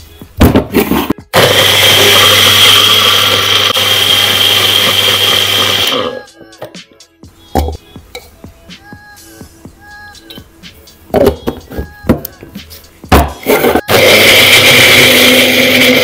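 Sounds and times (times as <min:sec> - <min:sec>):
blender motor whining: 0:01.3 - 0:06.2, 0:13.5 - 0:16.0.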